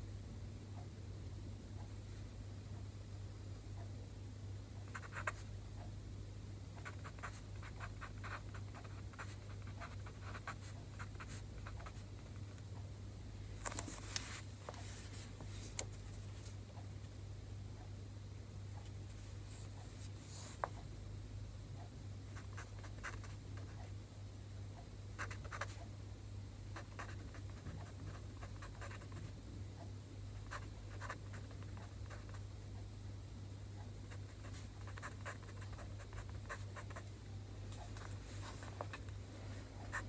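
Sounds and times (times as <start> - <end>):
low steady hum: 0.0 - 40.0
pen scratching on paper: 6.8 - 12.0, 22.4 - 23.4, 25.2 - 25.8, 26.8 - 29.3, 30.4 - 32.4, 34.1 - 37.0, 39.8 - 40.0.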